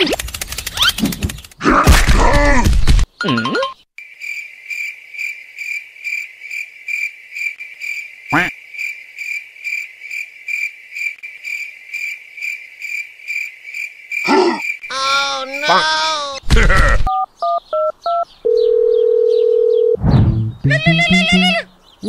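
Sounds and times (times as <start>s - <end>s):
crickets chirping: 4.0s - 15.8s
short pitched sound: 20.0s - 21.7s.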